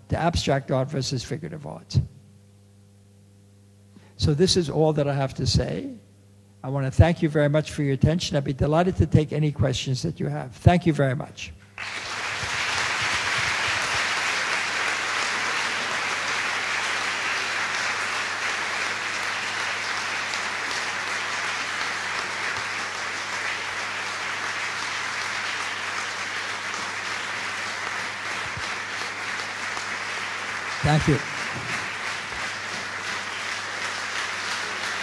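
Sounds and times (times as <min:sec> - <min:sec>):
audience applauding: 0:11.8 - 0:35.0.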